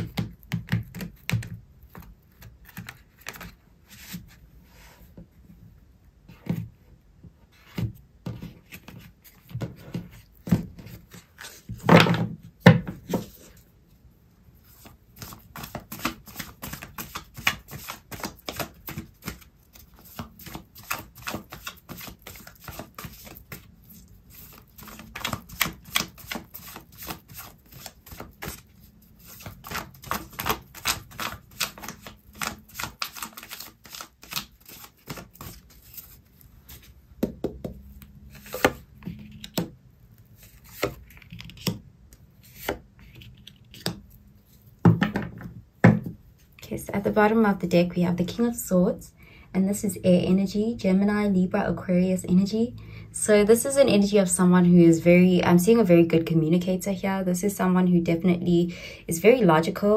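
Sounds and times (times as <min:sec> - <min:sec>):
cards being shuffled: 0:14.8 - 0:39.7, 0:40.4 - 0:41.8.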